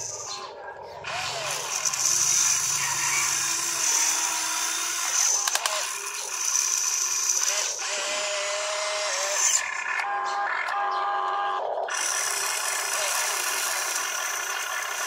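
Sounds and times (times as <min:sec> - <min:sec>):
small electric motors whining: 0:00.0 - 0:15.0
sharp clicks: 0:04.1 - 0:08.0.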